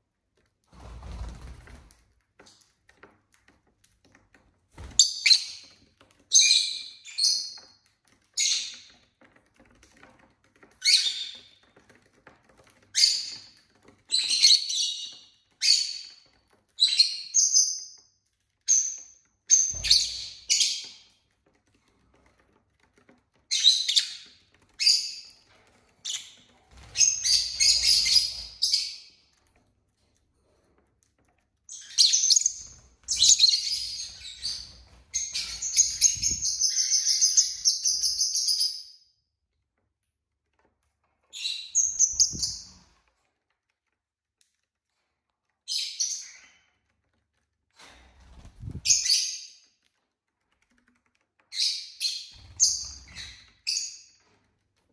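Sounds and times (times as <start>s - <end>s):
lovebirds chirping: 31.7s - 38.8s.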